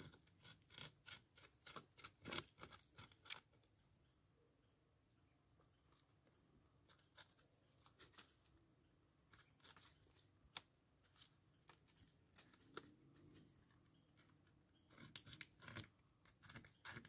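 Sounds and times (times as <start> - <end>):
beaver gnawing wood: 0.0 - 3.7, 9.3 - 17.0.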